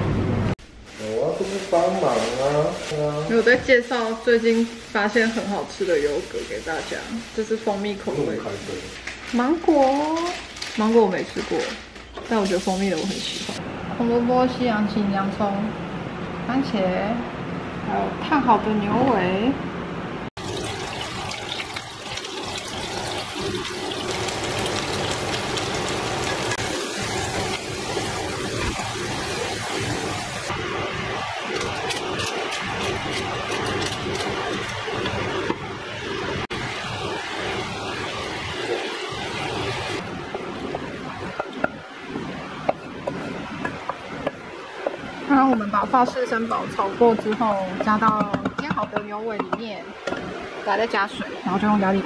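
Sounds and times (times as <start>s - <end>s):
meat sizzling in a frying pan: 20.4s - 41.9s
wooden spatula scraping and tapping: 47.1s - 50.2s.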